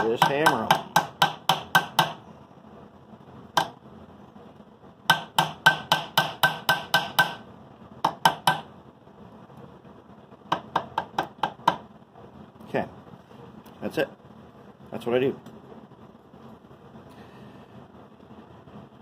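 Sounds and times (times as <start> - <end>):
small hammer tapping metal: 0.0 - 2.2, 5.1 - 7.4, 8.0 - 8.7.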